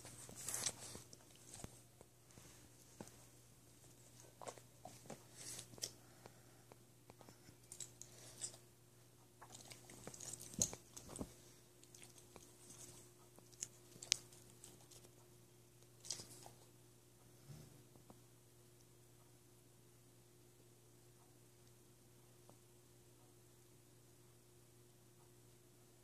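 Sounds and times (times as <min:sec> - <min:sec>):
kitten play-biting and pawing: 0:00.0 - 0:06.0, 0:09.4 - 0:16.8.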